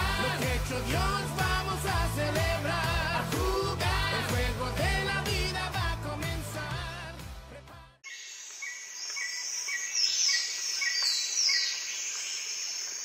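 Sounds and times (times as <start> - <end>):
background music: 0.0 - 8.0
bird chirping: 8.0 - 13.0
falling whistled bird calls: 8.1 - 13.0.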